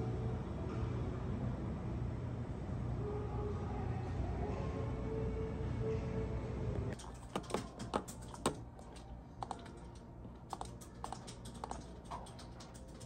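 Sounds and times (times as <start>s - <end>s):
soft background music: 0.0s - 13.0s
computer keyboard clicks: 7.0s - 13.0s.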